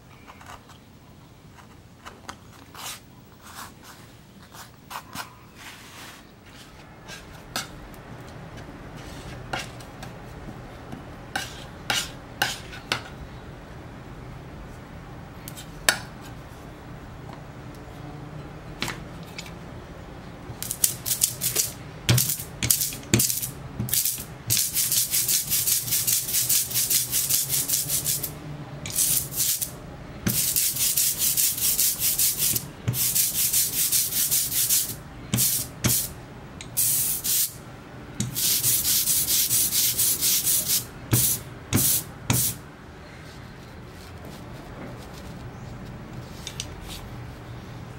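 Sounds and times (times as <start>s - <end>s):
ink roller sticky hiss: 20.6s - 28.3s, 28.9s - 29.7s, 30.3s - 37.6s, 38.2s - 42.6s.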